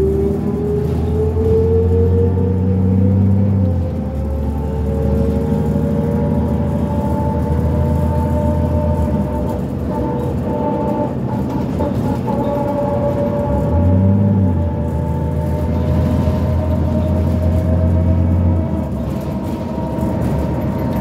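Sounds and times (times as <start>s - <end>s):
bus diesel engine running: 0.0s - 21.0s.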